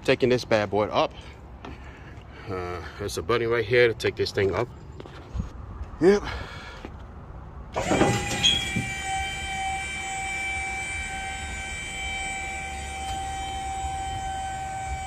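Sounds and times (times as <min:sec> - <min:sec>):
hydraulic pump whine: 0:07.7 - 0:15.0.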